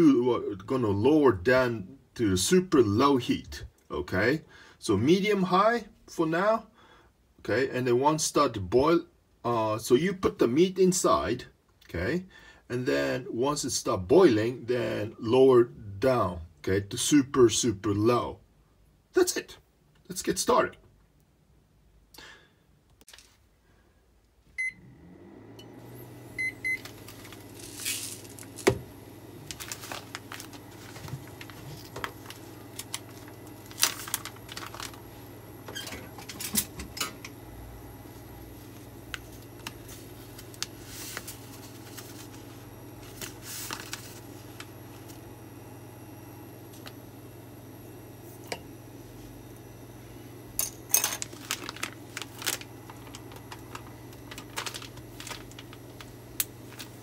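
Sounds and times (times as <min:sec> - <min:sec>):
low electrical hum: 0:00.0 - 0:57.0
cooktop beeping: 0:25.6 - 0:27.6, 0:35.2 - 0:38.0
plastic bag crinkling: 0:26.7 - 0:36.4, 0:38.6 - 0:45.2, 0:50.6 - 0:57.0.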